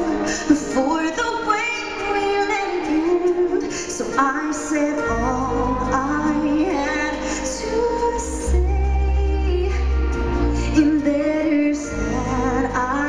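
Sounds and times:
woman singing: 0:00.0 - 0:13.0
low bass: 0:05.1 - 0:13.0.

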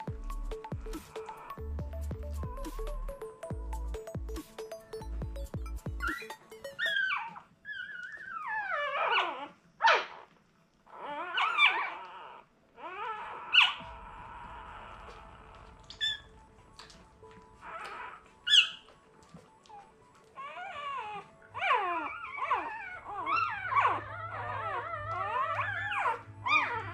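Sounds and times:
puppies squealing and whimpering: 0:00.0 - 0:01.8, 0:05.7 - 0:26.9.

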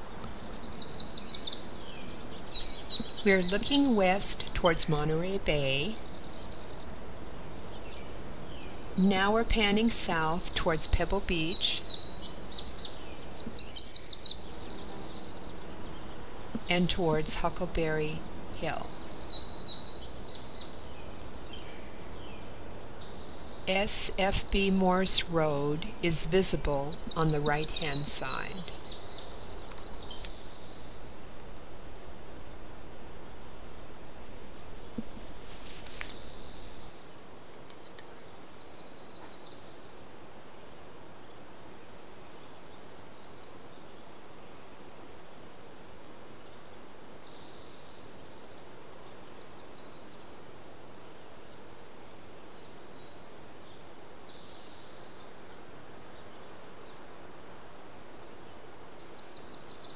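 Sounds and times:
birds chirping and trilling: 0:00.0 - 0:31.7, 0:33.3 - 0:40.0, 0:45.1 - 0:59.9
steady background hiss: 0:00.0 - 0:59.9.

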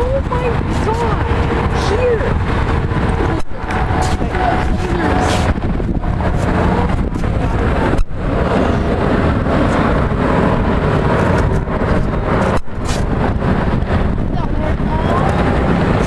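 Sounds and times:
jet engine rumble: 0:00.0 - 0:16.0
wind on microphone: 0:00.0 - 0:16.0.

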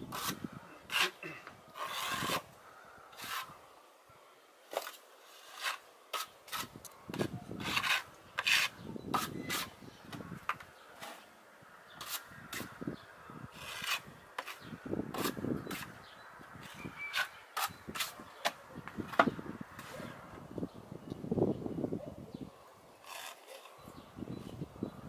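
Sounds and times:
trowel scraping across wall: 0:00.1 - 0:02.5, 0:03.1 - 0:03.6, 0:04.7 - 0:09.8, 0:10.4 - 0:11.3, 0:12.0 - 0:12.8, 0:13.5 - 0:16.0, 0:16.6 - 0:20.1, 0:23.0 - 0:23.8.

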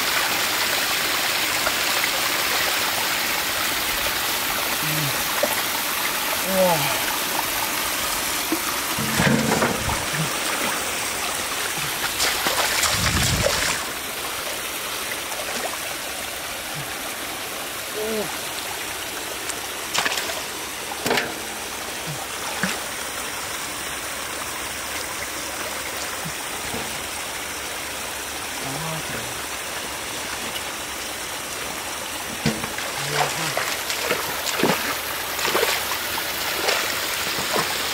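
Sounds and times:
stream water rushing: 0:00.0 - 0:37.9
water splashing: 0:01.5 - 0:18.3, 0:18.9 - 0:23.2, 0:31.8 - 0:37.9.

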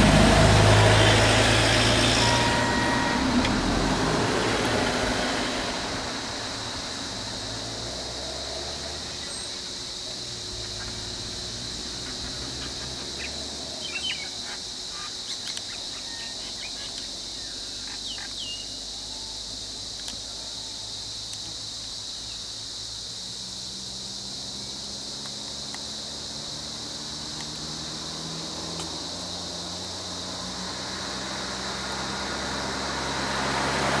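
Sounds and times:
idling vehicle engines hum: 0:00.0 - 0:34.0
high-pitched insect drone: 0:00.1 - 0:33.7
bird chirps: 0:11.9 - 0:19.4.

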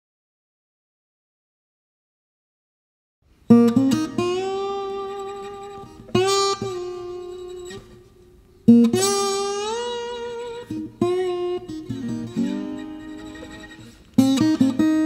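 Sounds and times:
acoustic guitar plucked notes: 0:03.5 - 0:15.0.

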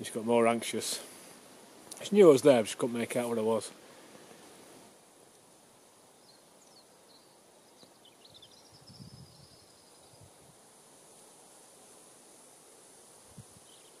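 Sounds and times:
steady high hiss: 0:00.0 - 0:14.0
faint high bird calls: 0:13.6 - 0:14.0.

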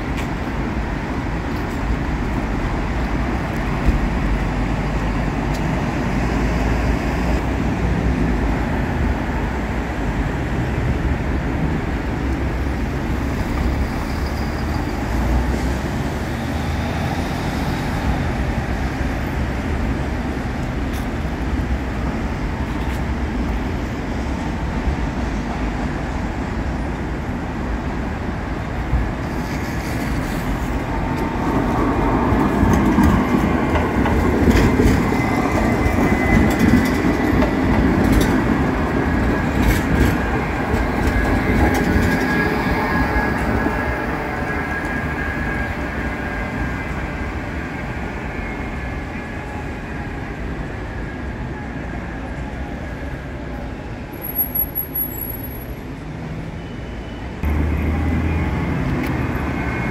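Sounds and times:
train wheels rumbling on rails: 0:00.0 - 0:56.4
traffic noise: 0:00.0 - 0:59.9
wheels clicking over rail joints: 0:29.2 - 0:43.7.

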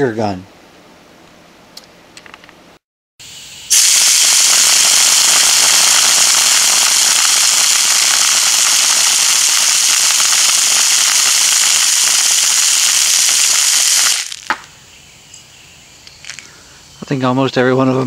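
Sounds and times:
compressed air rushing: 0:03.2 - 0:14.5
faint air hiss: 0:03.2 - 0:18.0.

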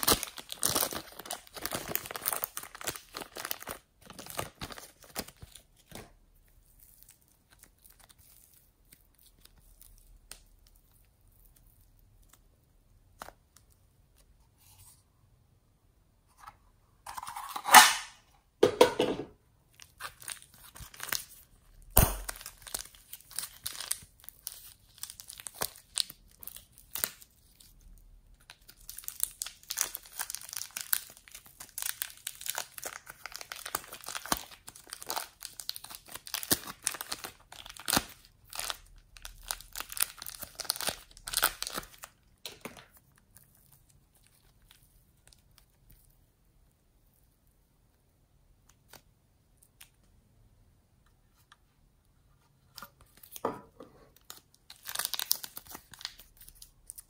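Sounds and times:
crackling clay squishes: 0:00.0 - 0:14.4.

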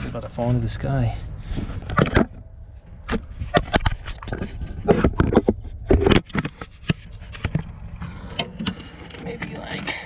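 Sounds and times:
steady low rumble: 0:00.0 - 0:10.0
scraping: 0:01.4 - 0:10.0
sharp clicks and knocks: 0:01.8 - 0:09.9.

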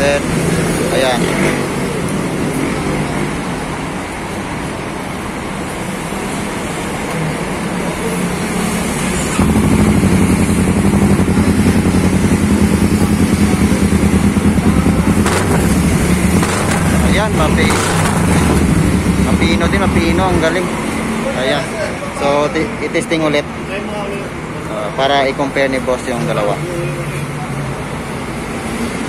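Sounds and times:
motorcycle engine throbbing: 0:09.4 - 0:20.6.

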